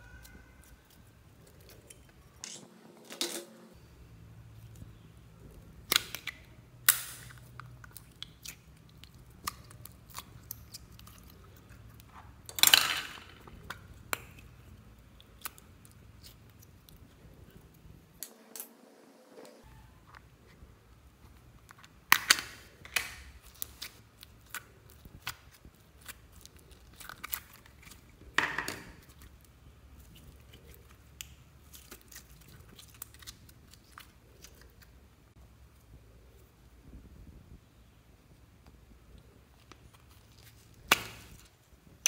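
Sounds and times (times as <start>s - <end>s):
hands squishing slime: 4.5s - 12.5s, 21.2s - 35.1s.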